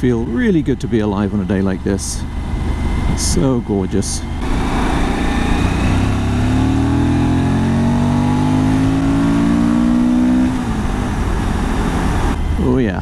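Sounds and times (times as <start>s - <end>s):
motorcycle engine under throttle: 4.2s - 12.4s.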